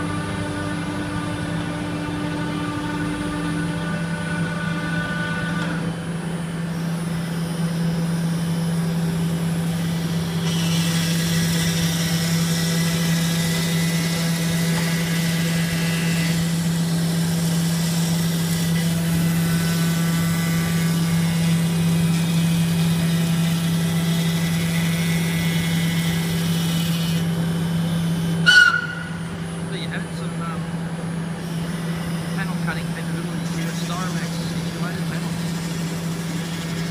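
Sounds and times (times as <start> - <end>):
cnc router humming: 0.0 - 36.9.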